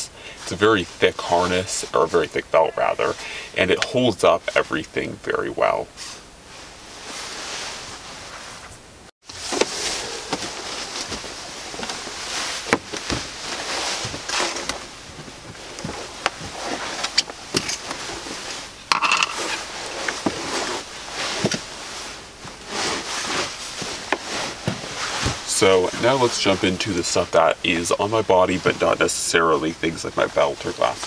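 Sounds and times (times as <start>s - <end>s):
clothing rustling: 6.0s - 31.0s.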